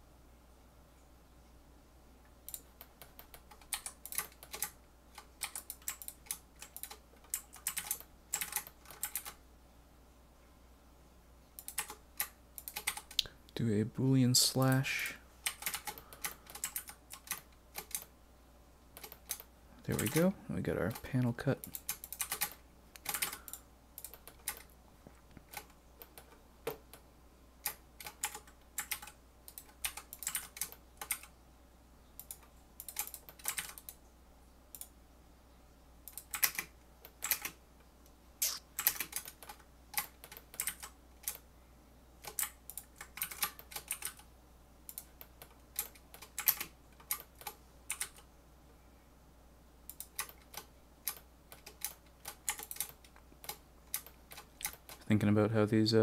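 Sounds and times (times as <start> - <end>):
computer keyboard keys clicking: 2.4 - 9.4, 11.6 - 13.3, 15.4 - 18.1, 19.0 - 20.3, 21.6 - 24.7, 27.6 - 31.3, 32.2 - 34.0, 36.1 - 37.6, 38.4 - 41.4, 42.2 - 44.3, 44.9 - 48.3, 49.9 - 55.0
low fan hum: 7.9 - 29.8.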